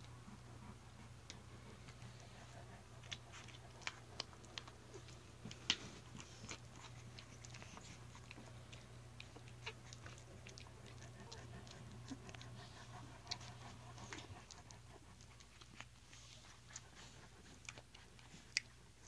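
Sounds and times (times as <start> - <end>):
low steady hum: 0.0 - 19.0
puppies wet smacks and clicks: 0.4 - 19.0.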